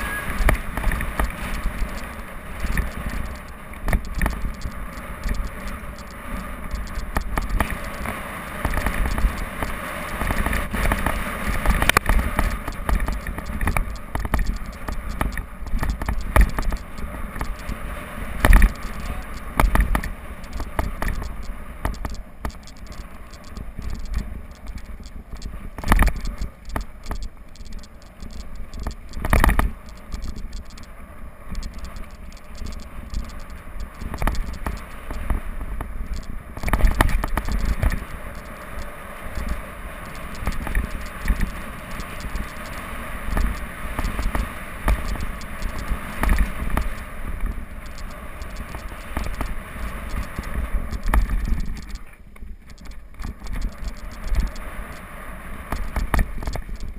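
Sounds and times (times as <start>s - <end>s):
bike rattling: 0.0s - 55.0s, 55.7s - 56.9s.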